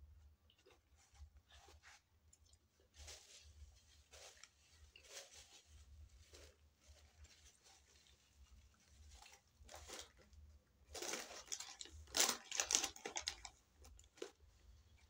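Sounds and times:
paper wrapping crinkling: 2.8 - 14.5.

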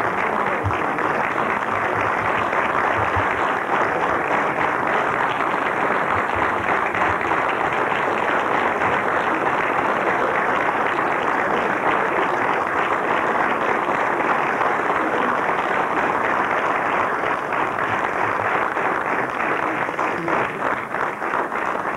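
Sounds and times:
audience applauding: 0.0 - 21.9.

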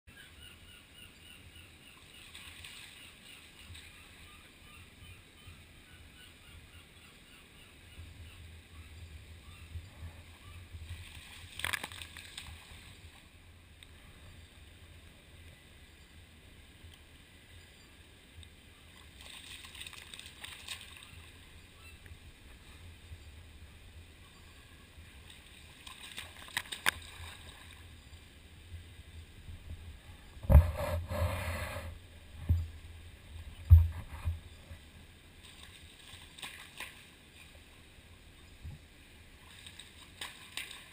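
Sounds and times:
water sloshing: 10.8 - 13.3, 18.9 - 21.5, 25.2 - 27.8
seal splashing in water: 11.0 - 13.0, 18.9 - 21.2, 25.3 - 27.8, 35.4 - 37.1, 39.4 - 40.9.

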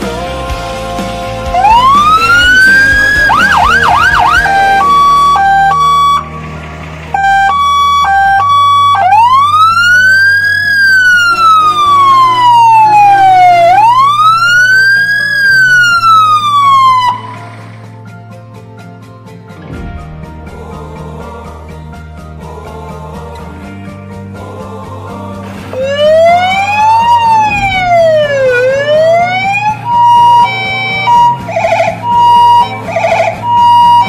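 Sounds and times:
electronic emergency siren: 1.5 - 17.8, 25.8 - 34.0.

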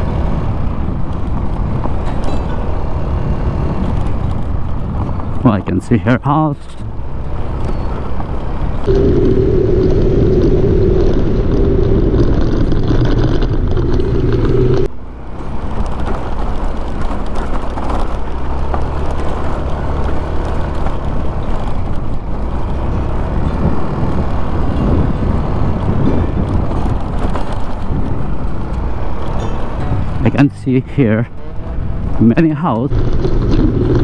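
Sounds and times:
road noise: 0.0 - 34.0
scooter engine running: 32.9 - 34.0.

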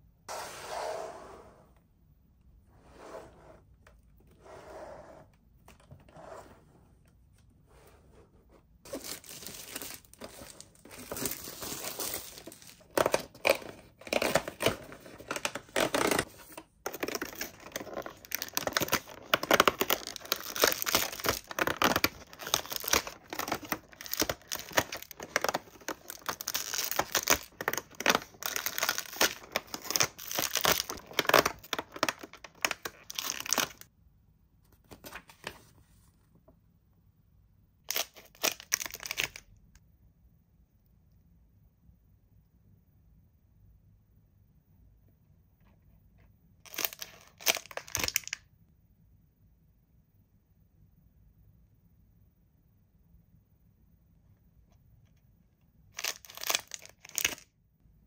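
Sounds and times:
packaging rustling and tearing: 8.9 - 33.9, 37.9 - 39.4, 46.7 - 48.4, 56.0 - 57.4.

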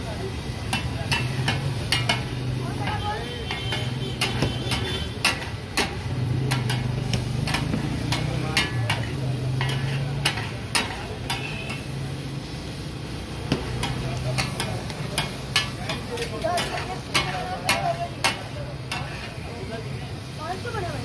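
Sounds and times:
chicken sizzling: 0.0 - 21.0
metal spatulas clacking on griddle: 0.6 - 12.1, 13.4 - 19.4.

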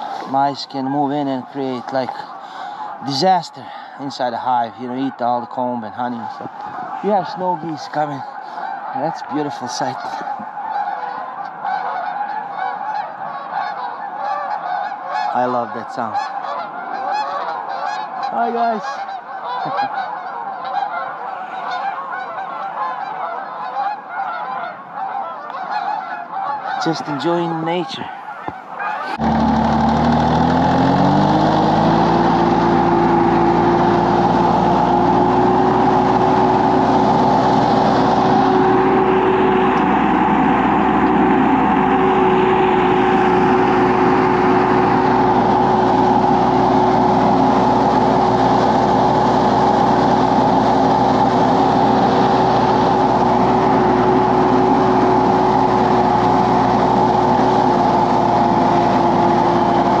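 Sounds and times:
tractor engine running: 0.0 - 11.0, 28.0 - 60.0.

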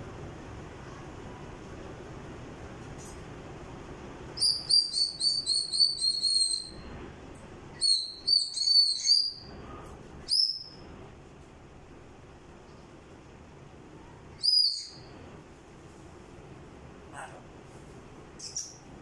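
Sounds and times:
parrot whistling: 4.4 - 6.9, 7.7 - 9.5, 10.2 - 10.8, 14.4 - 15.1.

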